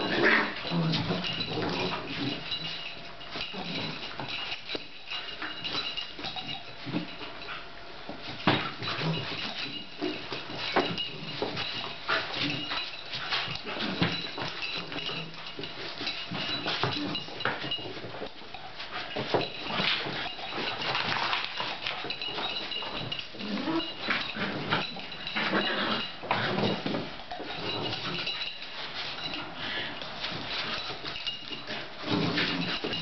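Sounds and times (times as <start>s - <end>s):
dogs growling and grunting: 0.0s - 4.4s, 22.1s - 28.4s, 31.8s - 33.0s
paws scrabbling on a rug: 0.0s - 33.0s.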